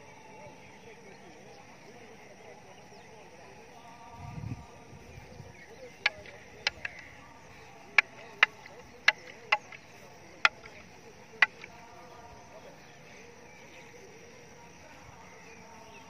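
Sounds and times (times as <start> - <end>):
wooden staffs clacking: 5.9 - 7.2, 7.9 - 11.8.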